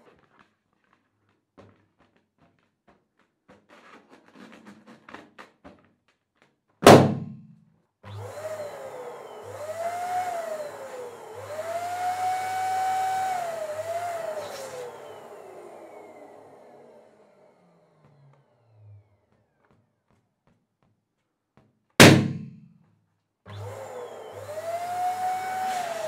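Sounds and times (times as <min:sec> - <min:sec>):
balloon popping: 0:06.8 - 0:07.5, 0:22.0 - 0:22.7
electric balloon pump whine: 0:08.0 - 0:20.6, 0:23.5 - 0:26.0
taps on a balloon: 0:21.6 - 0:22.8.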